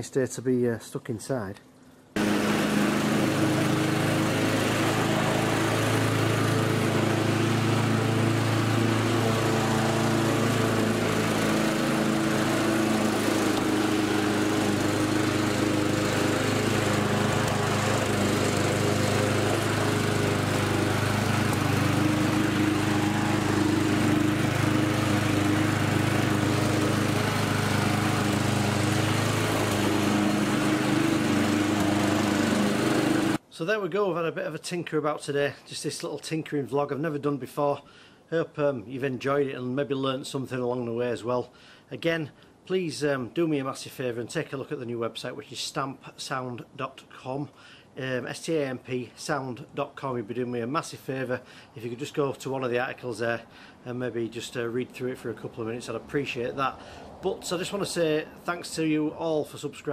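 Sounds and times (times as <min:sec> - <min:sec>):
lawnmower engine running: 0:02.2 - 0:33.4.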